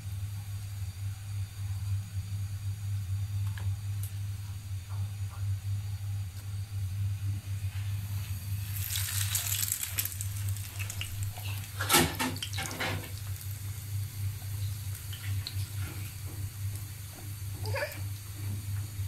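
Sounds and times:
bread sizzling in hot oil: 7.6s - 19.0s.

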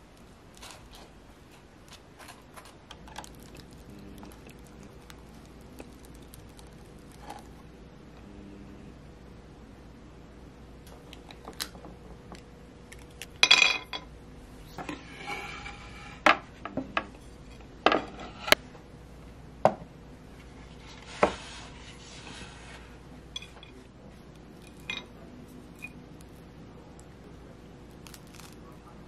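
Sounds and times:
tableware clinks and knocks: 13.4s - 14.1s, 24.7s - 25.1s
short rustling scrapes: 20.4s - 23.0s.

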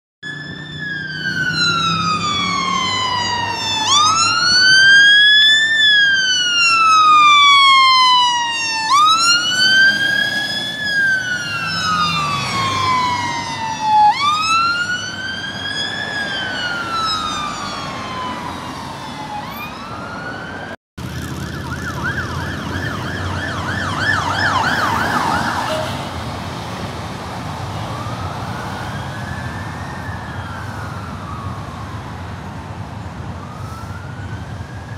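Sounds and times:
siren fast yelp: 0.2s - 20.7s, 21.5s - 26.0s
fire engine siren wailing: 0.2s - 34.9s
low road traffic: 0.2s - 34.9s.

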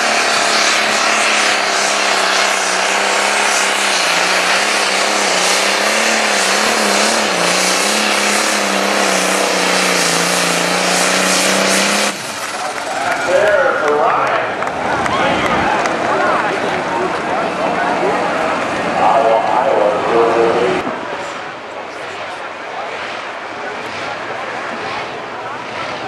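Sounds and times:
tractor engine running flat out: 0.0s - 20.5s.

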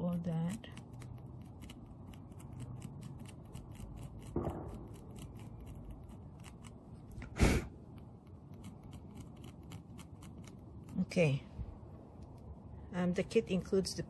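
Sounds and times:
loud knock: 4.3s - 5.0s.

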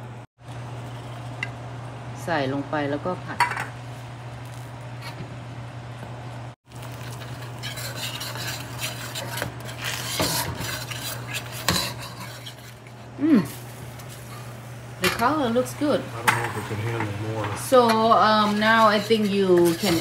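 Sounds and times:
coconut milk sizzling: 6.6s - 20.0s
ladle scraping in wok: 6.7s - 14.6s, 16.2s - 20.0s.

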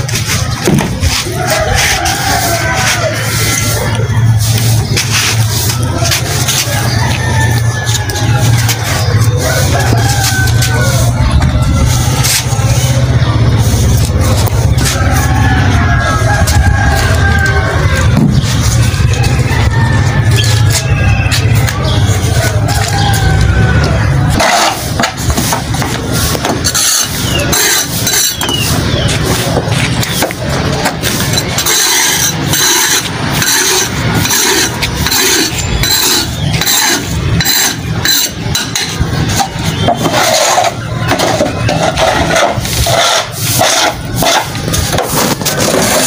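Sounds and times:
hand tool scraping soil on concrete: 0.0s - 7.4s, 24.3s - 30.3s, 30.9s - 46.0s.

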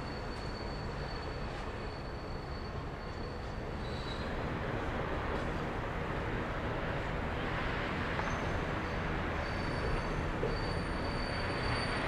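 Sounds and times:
high wheel squeal: 0.0s - 4.9s, 8.0s - 12.0s
train cars rumbling over bridge: 0.0s - 12.0s.

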